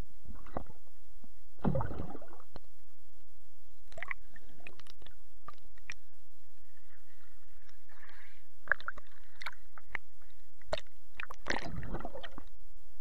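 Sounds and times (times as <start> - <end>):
water sloshing and gurgling: 0.3 - 1.0, 1.6 - 2.6, 3.9 - 6.1, 7.8 - 12.6
splashing and bubbling: 1.6 - 2.5, 3.9 - 6.0, 8.6 - 10.0, 10.7 - 12.5.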